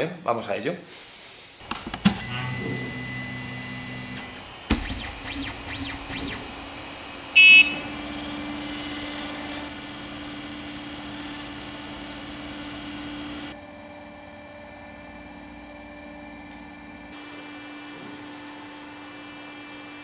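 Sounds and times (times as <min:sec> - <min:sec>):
stepper motors whining: 0:01.6 - 0:13.6
steady hum: 0:01.6 - 0:20.0
printer buzzer beep: 0:01.9 - 0:04.4, 0:07.4 - 0:09.4.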